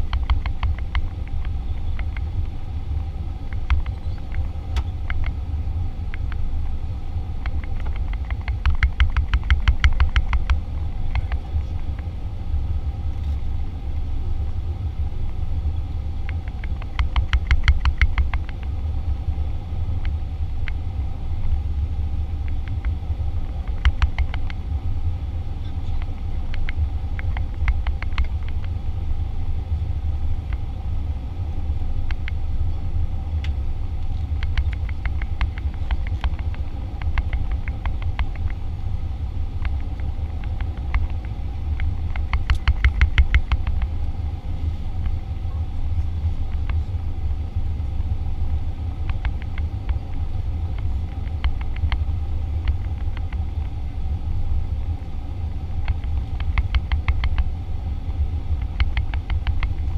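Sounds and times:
sharp clicks and rattles: 0.0s - 2.6s, 3.4s - 5.4s, 7.4s - 12.1s, 16.2s - 18.8s, 22.4s - 24.7s, 25.7s - 28.8s, 33.4s - 38.7s, 39.5s - 44.2s, 48.9s - 53.8s, 55.7s - 59.9s
faint steady hum: 0.0s - 59.9s
low rumble of engines and airflow: 0.0s - 59.9s.

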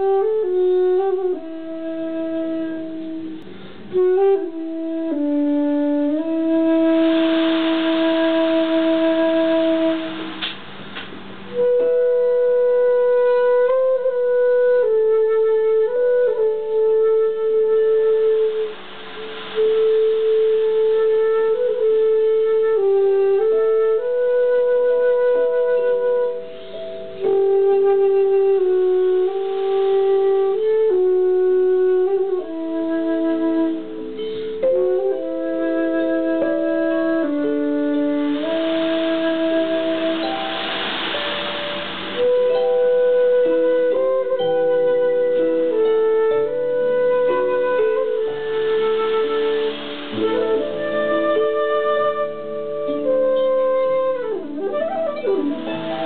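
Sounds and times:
whistle playing slow melody: 11.5s - 56.0s.

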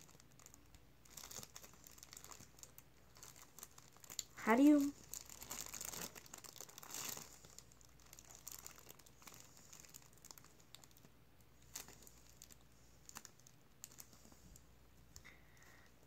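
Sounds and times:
plastic bag crinkling: 0.0s - 14.6s.

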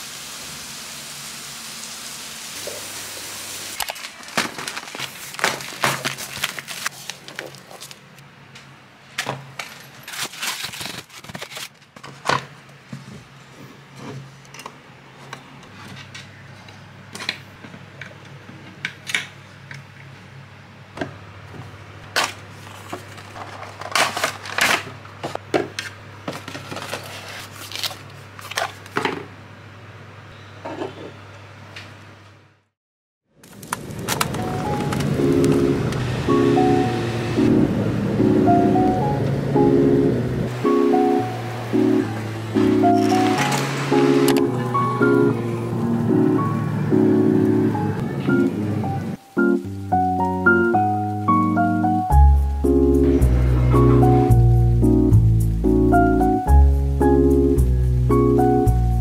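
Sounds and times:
steady low hum: 34.4s - 49.2s.

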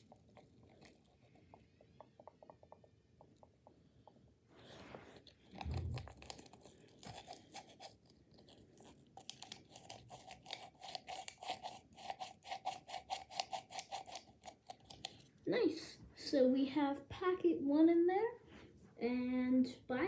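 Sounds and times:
paper packet crinkling: 5.5s - 15.2s.

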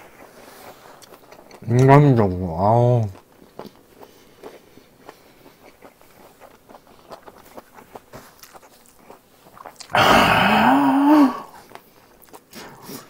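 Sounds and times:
person eating: 0.0s - 13.0s.

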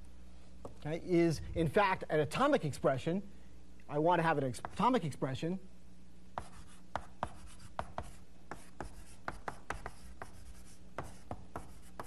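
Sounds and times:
faint low hum: 0.0s - 12.0s
chalk on blackboard: 6.4s - 12.0s.

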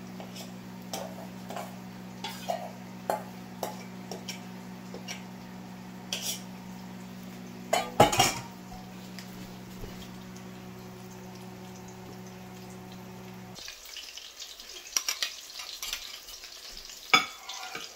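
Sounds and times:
spoon scraping a metal bowl: 0.2s - 5.3s, 6.1s - 6.5s.

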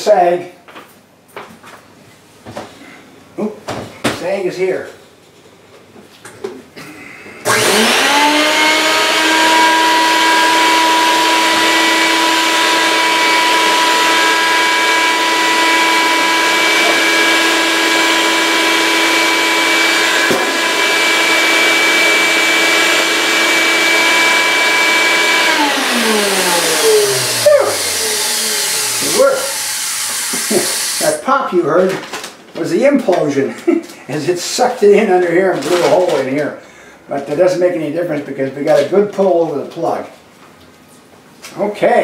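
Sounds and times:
vacuum motor whining: 7.4s - 31.2s.

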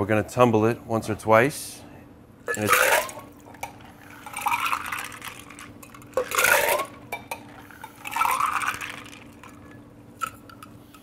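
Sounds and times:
liquid splashing: 2.5s - 9.8s
ice clattering: 2.5s - 10.7s.

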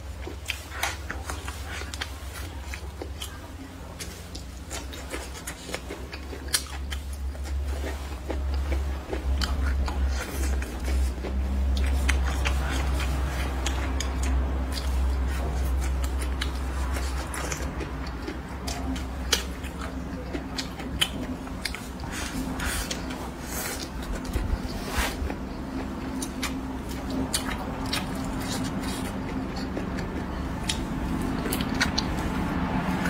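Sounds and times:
crunchy chewing: 0.0s - 33.0s.

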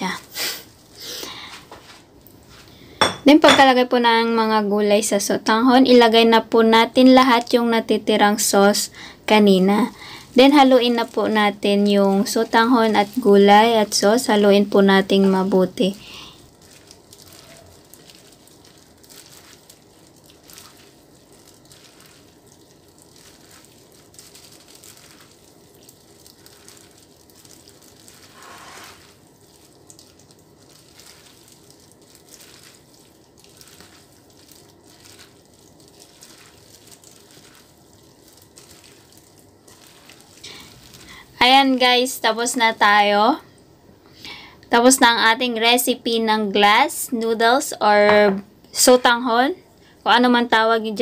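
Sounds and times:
wet squishing of noodles: 0.0s - 3.0s, 8.8s - 43.9s
plastic glove rustling: 0.0s - 3.7s, 8.6s - 43.7s.

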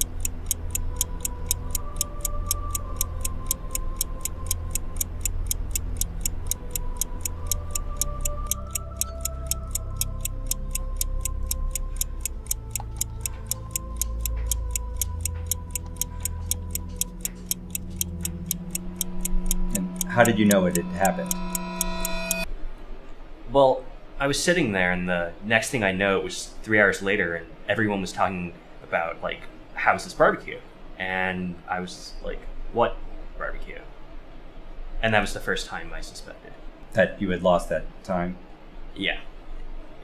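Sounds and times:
clock ticking: 0.0s - 22.5s
suspense score of low tones: 0.0s - 22.6s.

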